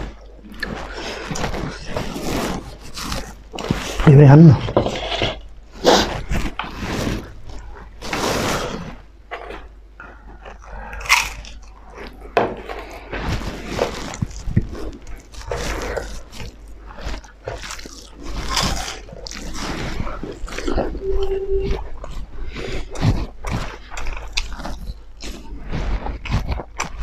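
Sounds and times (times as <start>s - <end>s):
crunching crisp crackers: 5.4s - 27.0s
wet chewing: 5.7s - 27.0s.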